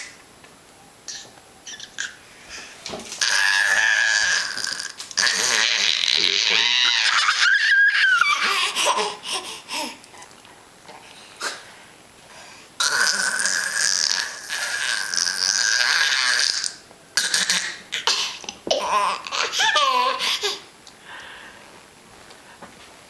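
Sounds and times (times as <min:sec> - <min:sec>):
baby laughing: 0:01.1 - 0:02.2, 0:05.2 - 0:10.0, 0:17.2 - 0:20.7
baby squealing: 0:01.1 - 0:02.2, 0:03.2 - 0:09.9, 0:14.4 - 0:18.2, 0:18.8 - 0:20.6.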